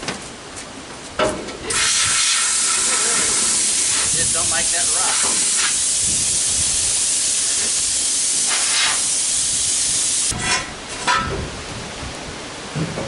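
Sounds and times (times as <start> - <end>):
loud steady hiss: 1.7 - 11.2.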